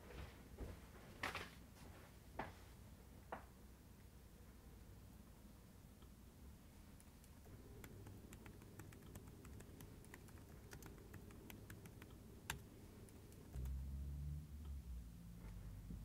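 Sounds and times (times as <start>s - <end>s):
typing on laptop keyboard: 7.0s - 13.9s.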